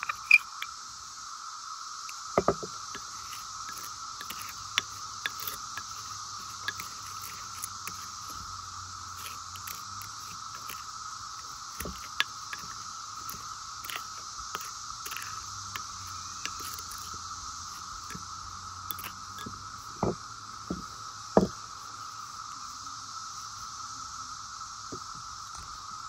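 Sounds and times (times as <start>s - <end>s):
cicadas buzzing: 0.0s - 26.0s
spoon scraping glass bowl: 2.9s - 8.5s, 11.8s - 17.1s.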